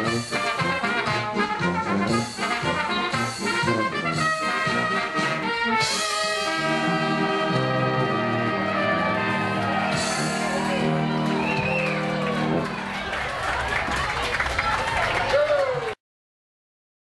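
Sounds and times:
oompah brass music: 0.0 - 13.6.

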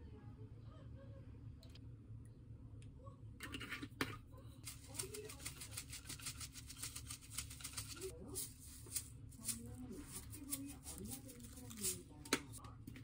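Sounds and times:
shaker bottle rattling: 4.7 - 12.6.

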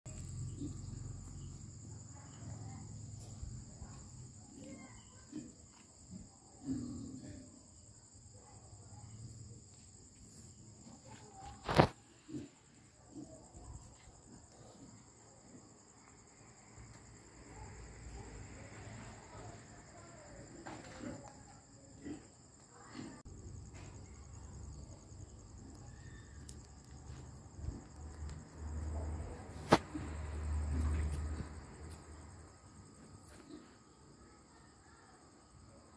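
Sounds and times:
crickets chirring: 0.1 - 35.9.

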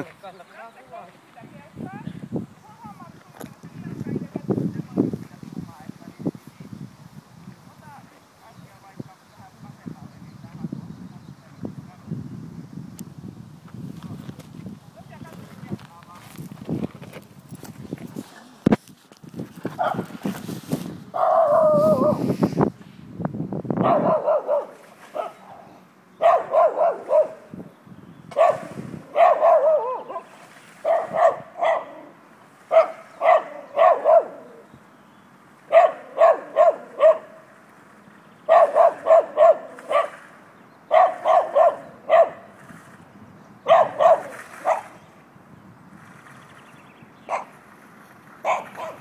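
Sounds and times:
rubbing on microphone: 13.7 - 22.9
dog barking: 19.8 - 20.1, 23.8 - 25.5, 26.2 - 27.5, 28.3 - 32.1, 32.7 - 34.6, 35.7 - 37.4, 38.5 - 40.2, 40.9 - 42.5, 43.6 - 45.0, 47.3 - 47.5, 48.4 - 49.0.

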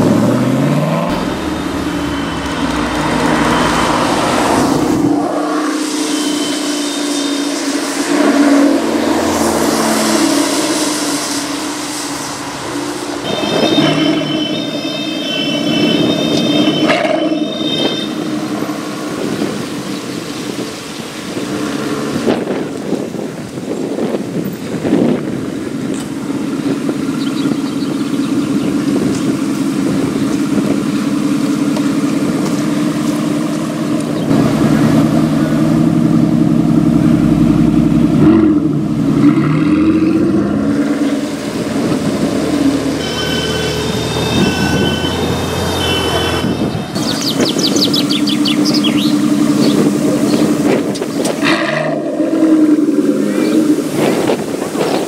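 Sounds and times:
car engine idling: 0.0 - 5.2, 25.7 - 39.2, 47.0 - 54.5
engine throttle blips: 0.0 - 19.9, 25.9 - 55.0.

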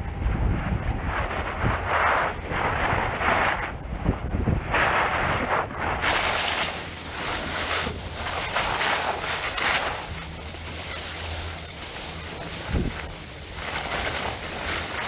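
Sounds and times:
wind buffeting microphone: 0.0 - 15.0
skis scraping over snow: 0.2 - 15.0.

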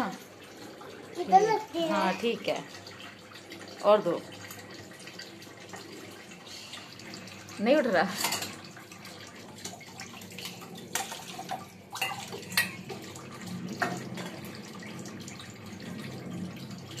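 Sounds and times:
steel pots clinking: 7.3 - 14.5.

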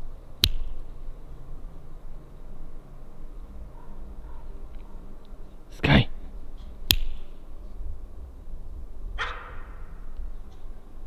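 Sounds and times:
dog barking: 3.7 - 5.0, 9.2 - 9.7.

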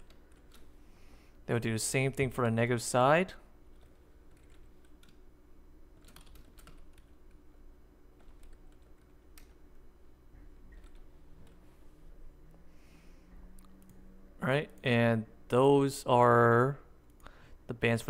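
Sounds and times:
faint keyboard typing: 0.0 - 0.8, 3.6 - 5.2, 5.9 - 7.5, 8.2 - 9.7, 10.4 - 11.7
low steady hum: 0.0 - 18.0.

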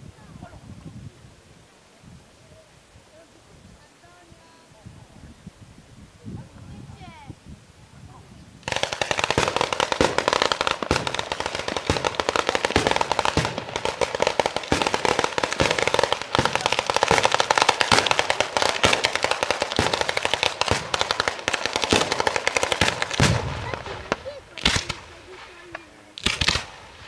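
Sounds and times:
firecrackers cracking: 8.6 - 27.0.

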